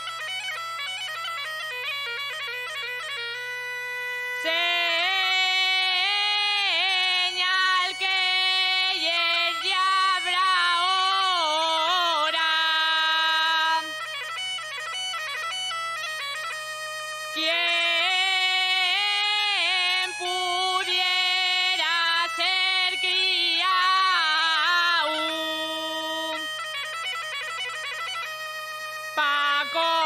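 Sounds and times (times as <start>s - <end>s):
bagpipe drone: 0.0s - 30.0s
woman singing melismatic phrases: 4.4s - 14.0s, 17.4s - 26.5s, 29.2s - 30.0s.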